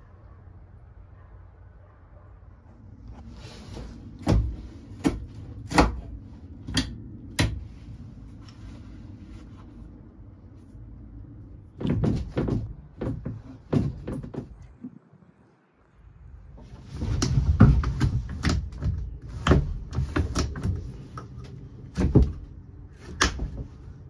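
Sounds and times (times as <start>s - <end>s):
steering wheel knocks and clunks: 11.7s - 14.8s.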